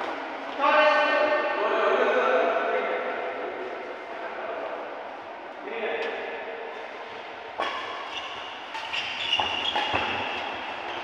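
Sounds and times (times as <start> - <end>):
shoes squeaking on court: 7.6 - 11.0.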